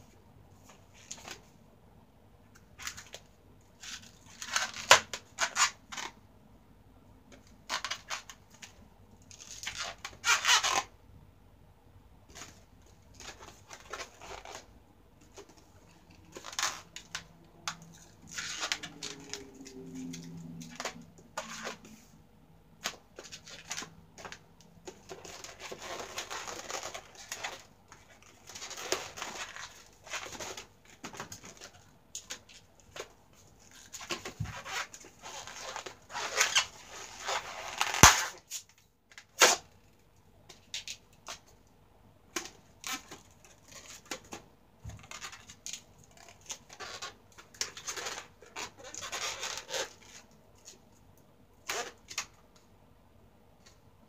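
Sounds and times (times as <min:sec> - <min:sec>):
balloons squeaking and rubbing: 0:09.3 - 0:10.9, 0:13.2 - 0:14.7, 0:15.9 - 0:17.3, 0:17.9 - 0:21.9, 0:25.0 - 0:30.7, 0:33.6 - 0:38.6, 0:45.0 - 0:50.3.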